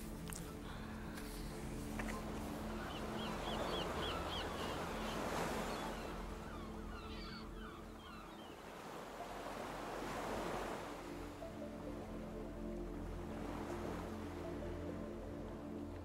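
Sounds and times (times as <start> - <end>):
surf washing ashore: 0.0 - 6.6, 8.5 - 12.0
small birds chirping: 2.0 - 8.6.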